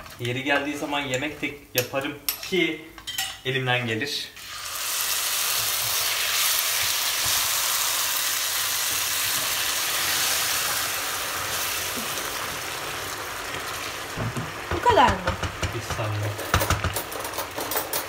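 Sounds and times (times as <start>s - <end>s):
rice pot sizzling: 4.4s - 17.7s.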